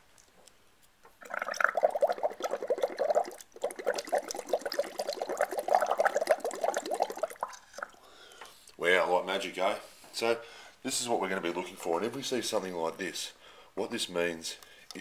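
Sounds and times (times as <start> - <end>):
bubbling through a straw in water: 1.2 - 8.1.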